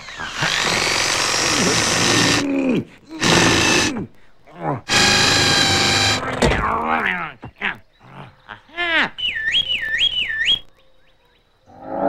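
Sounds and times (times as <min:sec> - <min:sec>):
cartoon power drill whirring: 0:00.0 - 0:02.5, 0:03.2 - 0:04.1, 0:04.9 - 0:06.4.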